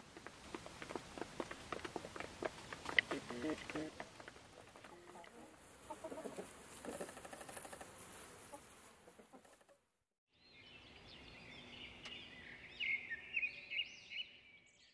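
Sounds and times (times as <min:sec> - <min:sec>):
chickens clucking: 0:01.4 - 0:09.8
robin singing: 0:10.3 - 0:14.9.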